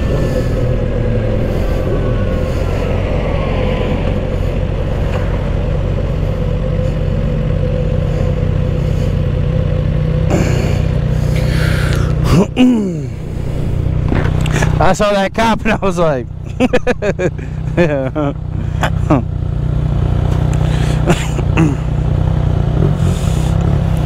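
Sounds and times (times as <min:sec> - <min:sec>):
wind rushing over microphone: 0:00.0 - 0:07.2, 0:13.1 - 0:16.4
motorcycle engine running: 0:00.0 - 0:24.0.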